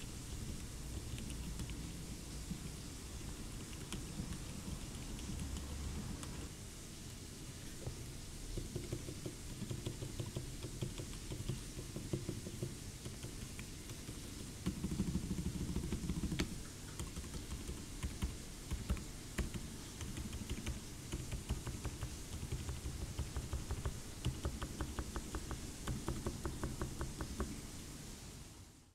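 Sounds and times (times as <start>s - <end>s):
mechanical keyboard keystrokes: 8.8s - 27.4s.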